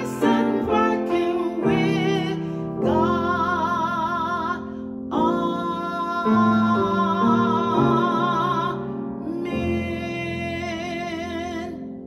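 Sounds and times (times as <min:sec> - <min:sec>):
piano chords: 0:00.0 - 0:12.0
woman singing with vibrato: 0:05.2 - 0:11.8.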